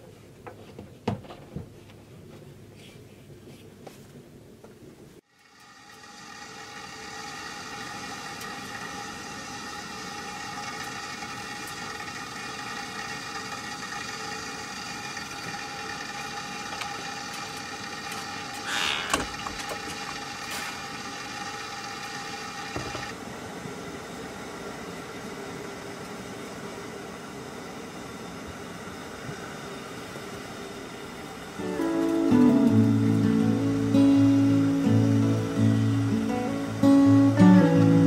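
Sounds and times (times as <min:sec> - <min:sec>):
camp stove burner hissing: 0:05.2 - 0:38.0.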